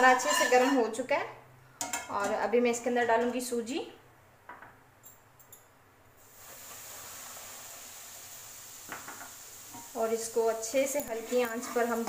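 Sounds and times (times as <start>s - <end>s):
semolina sizzling in hot oil: 6.2s - 12.0s.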